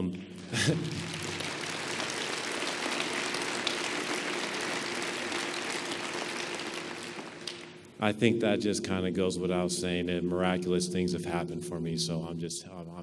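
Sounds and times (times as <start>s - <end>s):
audience applauding: 0.4s - 7.8s.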